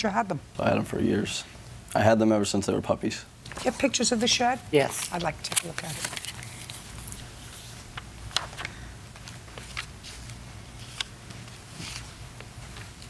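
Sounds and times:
papers rustling: 3.5 - 13.0.

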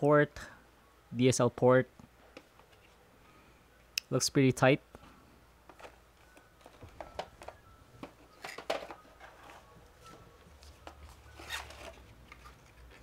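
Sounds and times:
paper rustling: 8.4 - 13.0.

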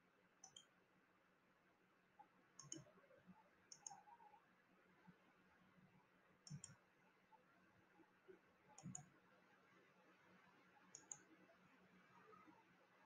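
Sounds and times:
faint low hum: 0.0 - 13.0
faint double clicks: 6.4 - 6.8.

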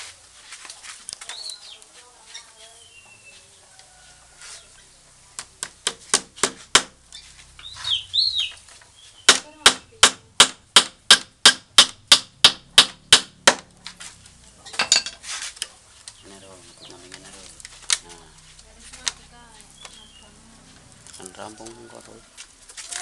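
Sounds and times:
sharp wooden taps on bamboo: 5.4 - 7.0, 8.6 - 14.0, 17.1 - 18.2.

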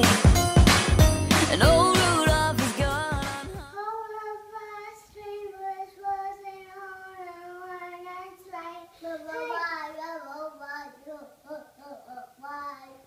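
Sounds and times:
music: 0.0 - 3.7.

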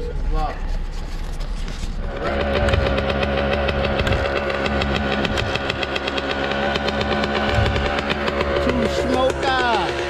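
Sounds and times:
dirt bike engine running: 2.0 - 10.0.

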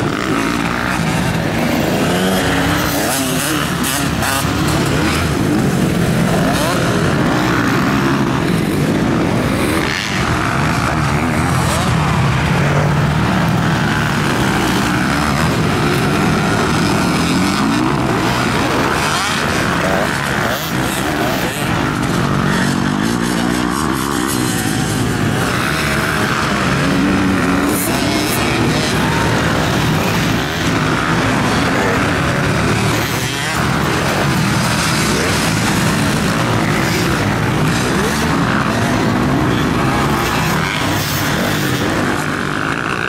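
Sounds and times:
motocross bikes revving: 0.0 - 43.0.

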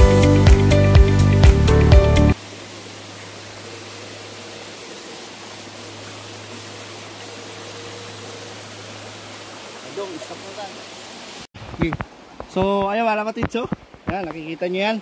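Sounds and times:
background music: 0.0 - 2.4
creek water rushing: 0.0 - 15.0.

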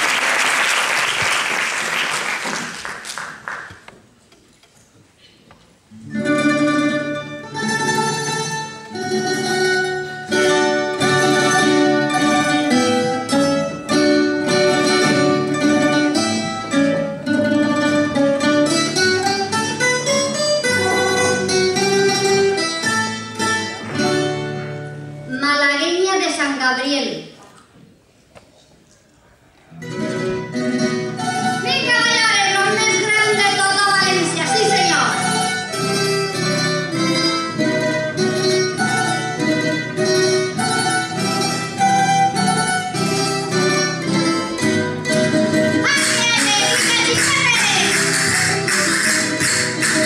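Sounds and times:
audience applause: 0.0 - 4.0
plucked string folk dance tune: 1.0 - 25.5, 29.7 - 50.0.

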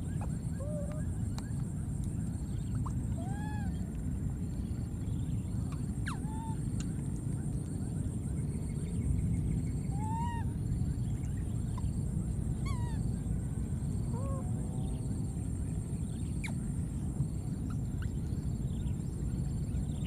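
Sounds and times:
infant monkey coo calls: 0.0 - 1.3, 2.5 - 3.9, 5.7 - 6.9, 9.8 - 10.6, 12.6 - 13.1, 14.0 - 15.0.

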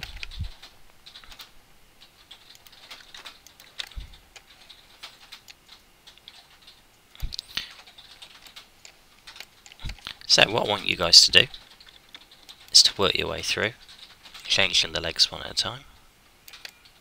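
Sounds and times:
keyboard and mouse clicking: 0.0 - 10.3, 11.4 - 12.9, 16.4 - 17.0.

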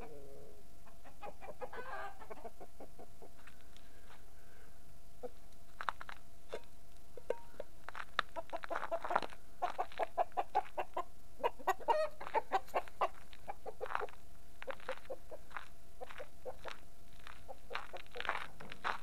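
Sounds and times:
chickens clucking: 0.0 - 3.6, 8.3 - 19.0.

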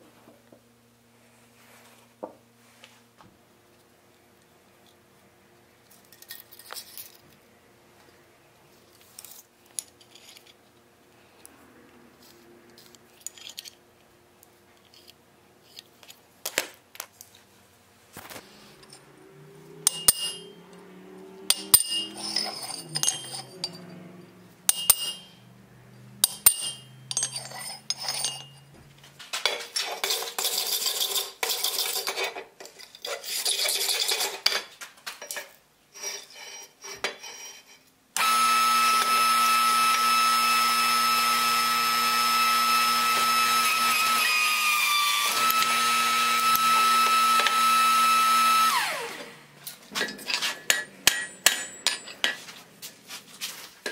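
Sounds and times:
steel clinking on steel plate: 19.8 - 20.6, 21.5 - 24.0, 24.7 - 25.4, 26.2 - 28.7, 50.0 - 52.5
scraping on metal: 19.8 - 25.6, 26.2 - 28.7, 29.4 - 34.7, 35.4 - 37.9
hammer taps ringing on anvil: 19.9 - 20.5, 21.5 - 22.2, 24.7 - 25.3.

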